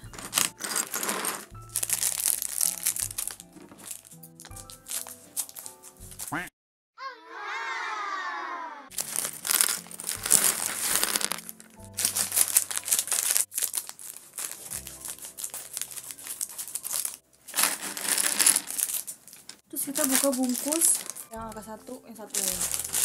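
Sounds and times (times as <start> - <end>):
plastic bag crinkling: 0.0 - 6.4, 8.9 - 23.0
background music: 0.0 - 6.5, 8.9 - 19.0, 19.6 - 23.0.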